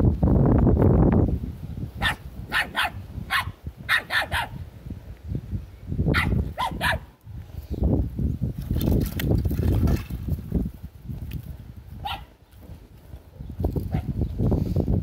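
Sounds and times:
small dog barking: 2.0 - 4.6, 6.1 - 7.1, 12.0 - 12.3, 13.9 - 14.1.

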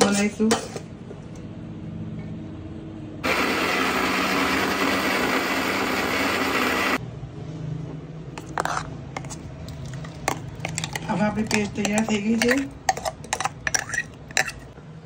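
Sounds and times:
mixer grinder whirring: 3.2 - 7.0.

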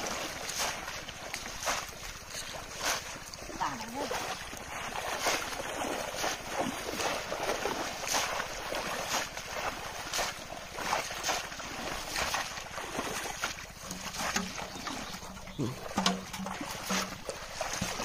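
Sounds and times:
pond water splashing: 0.0 - 18.0.

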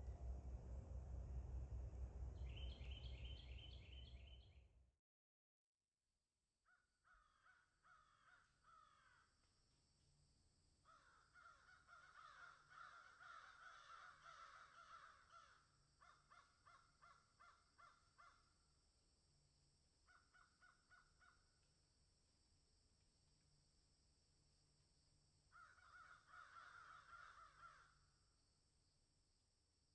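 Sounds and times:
faint crows cawing: 6.7 - 9.5, 10.8 - 18.6, 20.0 - 21.6, 25.5 - 28.3.

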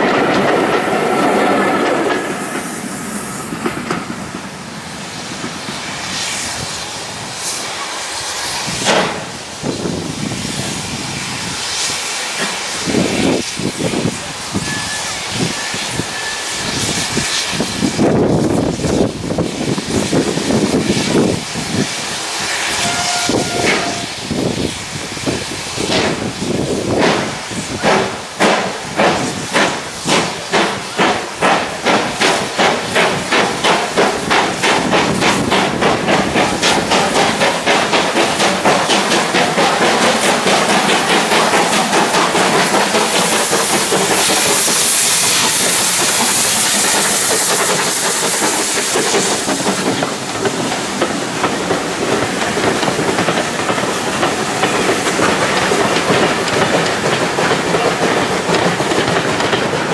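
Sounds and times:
steam hissing: 0.0 - 59.9
steam locomotive chuffing: 0.0 - 59.9.

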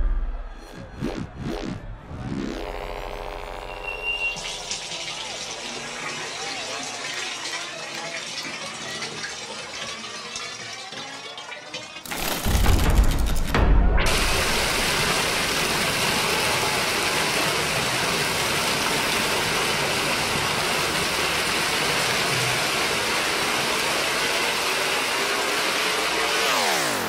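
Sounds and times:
dense electronic noise wash: 0.0 - 4.8, 13.9 - 21.1
falling electronic sweep: 0.0 - 4.8.

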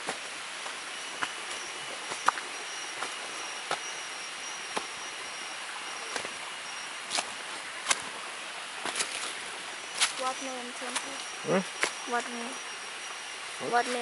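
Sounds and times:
high insect drone: 0.0 - 14.0
footsteps crunching on dry leaves: 8.8 - 11.2.

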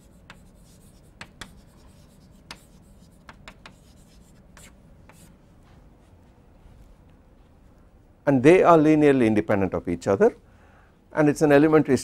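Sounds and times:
chalk tapping and scratching on blackboard: 0.0 - 5.4.

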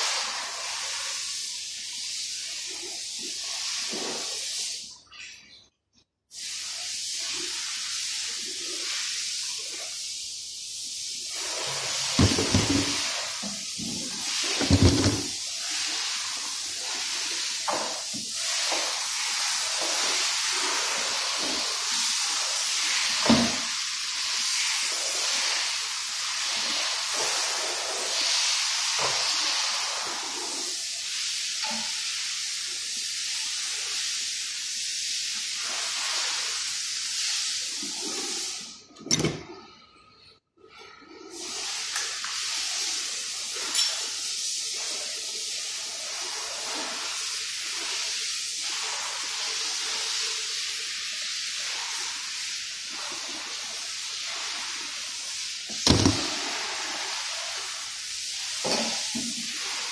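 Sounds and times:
steady hiss: 0.0 - 5.0, 6.3 - 38.9, 41.4 - 59.9
sharp knock: 55.8 - 56.3.

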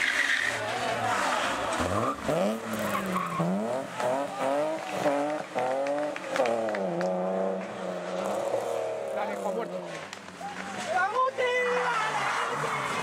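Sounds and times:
rally car engine revving: 0.0 - 10.2.

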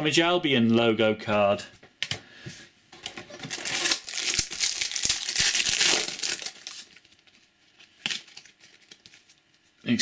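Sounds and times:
wrapper crinkling and tearing: 3.4 - 9.5.

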